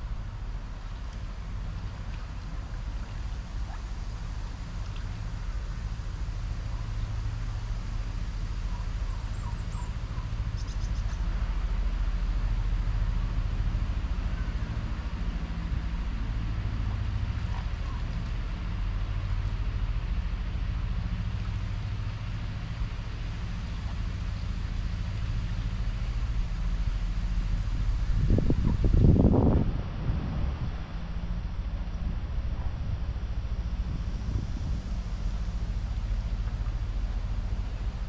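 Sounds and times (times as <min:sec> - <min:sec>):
low outdoor rumble: 0:00.0 - 0:38.0
faint bird chirps: 0:08.8 - 0:11.2.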